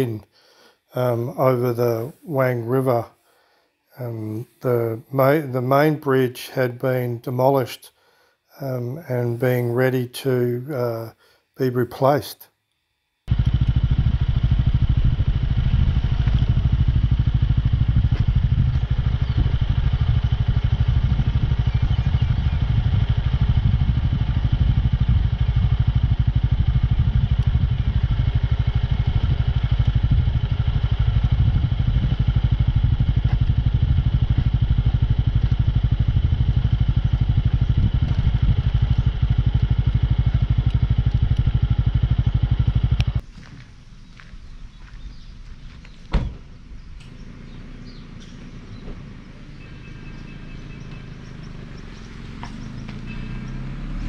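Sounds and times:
motorcycle engine rumbling: 0:13.3 - 0:54.0.

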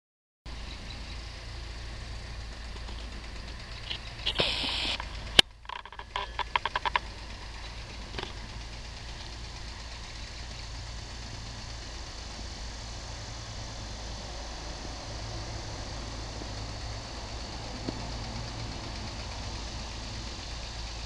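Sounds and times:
low motor hum: 0:00.5 - 0:21.0
quick run of ticks: 0:02.6 - 0:10.8
sharp click: 0:03.8 - 0:07.1
brief hiss: 0:04.2 - 0:05.3.

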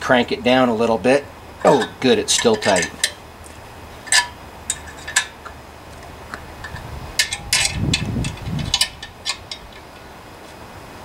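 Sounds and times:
metal clicks and clinks: 0:01.6 - 0:03.2, 0:04.0 - 0:10.0.

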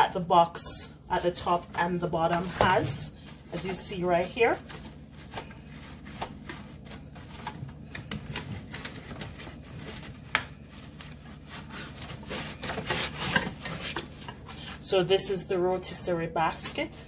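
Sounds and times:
foam rustling and scraping: 0:00.0 - 0:16.9.

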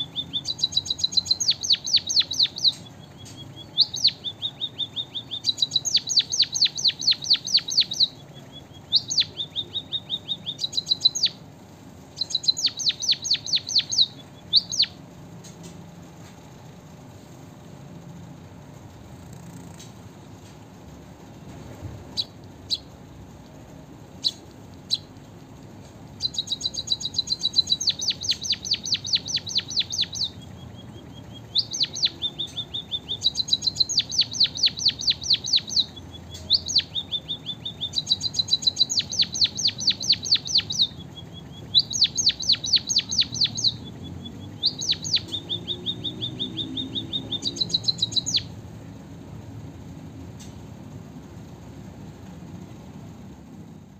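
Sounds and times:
bird chips: 0:00.0 - 0:15.8, 0:21.5 - 0:48.6
bird trilling song: 0:00.0 - 0:17.2, 0:22.1 - 0:23.1, 0:24.0 - 0:25.2, 0:26.1 - 0:48.6.

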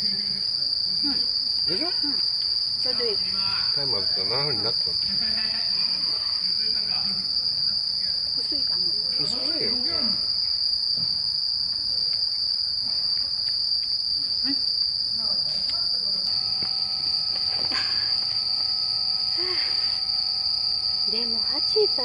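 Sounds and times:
crickets trilling: 0:00.0 - 0:22.0
faint voices: 0:15.2 - 0:20.2.

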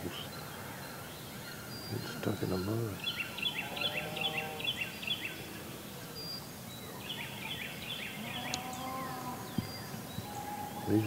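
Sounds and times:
outdoor background noise: 0:00.0 - 0:11.0
songbird whistling: 0:06.2 - 0:11.0.

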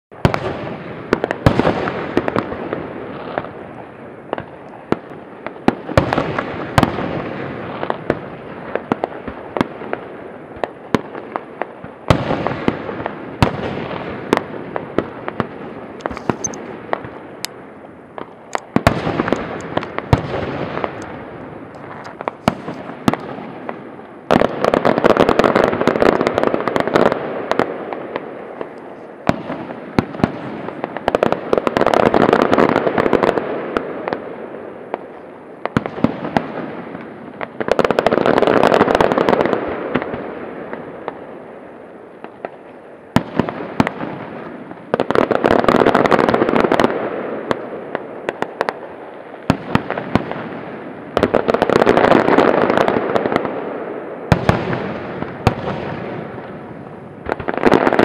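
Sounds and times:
fireworks rumble and crackle: 0:00.1 - 0:58.0
firework shells bursting: 0:16.0 - 0:24.6.

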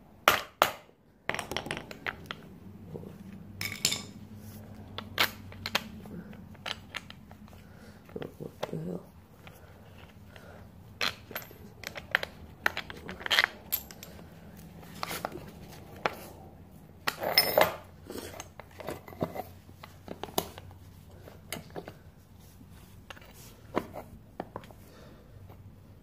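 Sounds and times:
bicycle parts clinking: 0:03.6 - 0:04.2, 0:11.0 - 0:15.4, 0:17.0 - 0:20.6.

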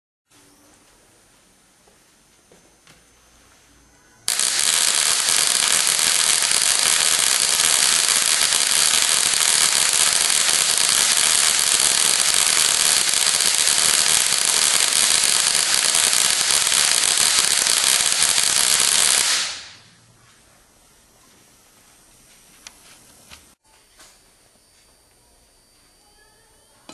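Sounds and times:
crackling electric spark buzz: 0:04.3 - 0:19.9.

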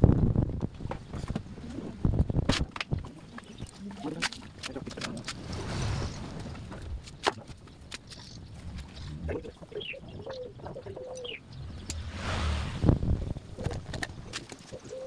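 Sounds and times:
pigeon cooing: 0:09.3 - 0:11.4, 0:14.7 - 0:15.0
rush of noise: 0:11.5 - 0:14.0.

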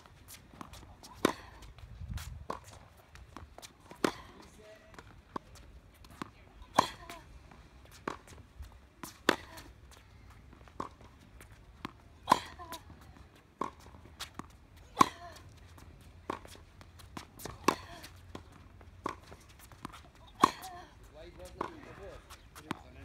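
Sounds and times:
tennis ball bouncing on court: 0:00.3 - 0:23.0
tennis ball hit by rackets: 0:00.5 - 0:02.8, 0:03.4 - 0:07.2, 0:07.9 - 0:08.4, 0:09.0 - 0:09.8, 0:10.8 - 0:11.1, 0:11.8 - 0:15.4, 0:16.2 - 0:20.8, 0:21.4 - 0:22.9.

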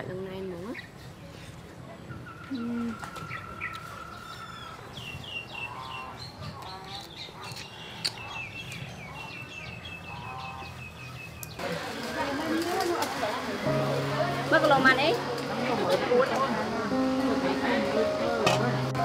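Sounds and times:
birds chirping: 0:01.9 - 0:11.6.

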